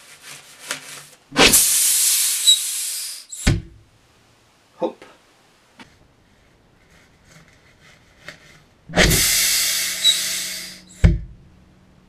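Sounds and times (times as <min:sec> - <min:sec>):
loud rushing hiss: 0:01.3 - 0:03.8, 0:08.9 - 0:11.1.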